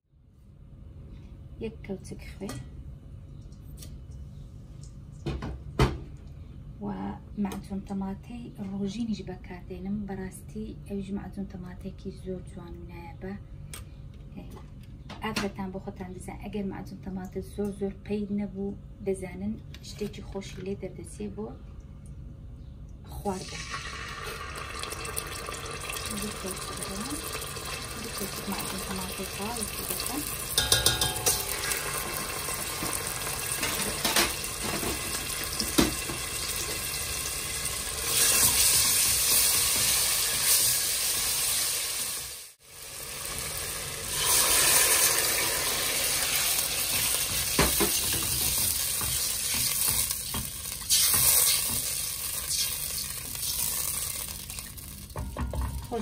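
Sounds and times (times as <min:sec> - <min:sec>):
tomato paste sizzling in oil: 0:23.4 - 0:55.1.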